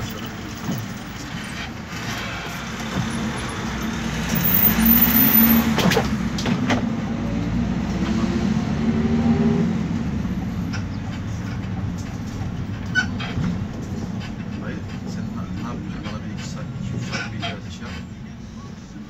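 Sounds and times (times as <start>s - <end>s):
engine and road rumble: 0.0s - 19.0s
undercarriage squeaks and creaks: 10.5s - 18.2s.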